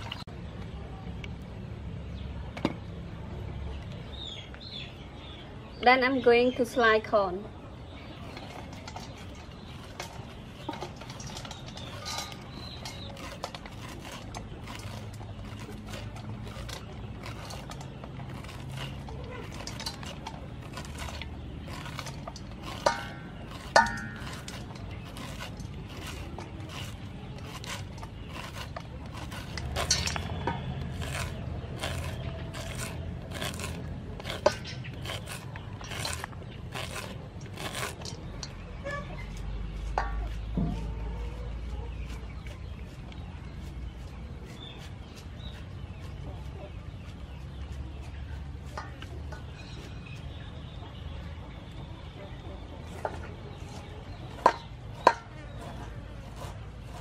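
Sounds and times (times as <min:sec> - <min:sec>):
knife cutting corn kernels: 0:08.3 - 0:40.9, 0:54.3 - 0:57.0
kernels clicking into metal bowl: 0:08.5 - 0:38.6.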